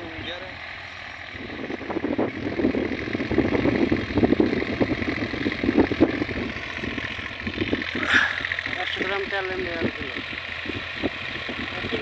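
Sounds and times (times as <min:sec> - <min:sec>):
distant tractor diesel engine: 0:00.0 - 0:12.0
wind gusts on microphone: 0:01.2 - 0:08.8.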